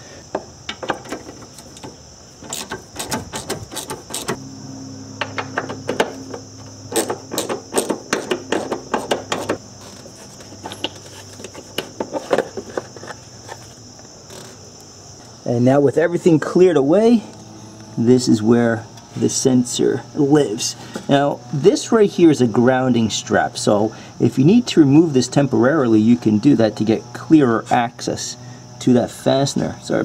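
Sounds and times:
plastic knocks and rattles: 0:00.3 - 0:04.4, 0:05.2 - 0:09.6
hand ratchet clicking: 0:01.0 - 0:04.4, 0:06.9 - 0:10.0.

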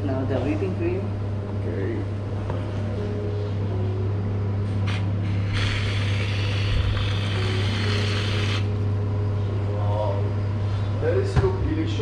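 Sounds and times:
steady low hum: 0:00.0 - 0:12.0
whipped cream dispenser hissing: 0:04.9 - 0:08.8.

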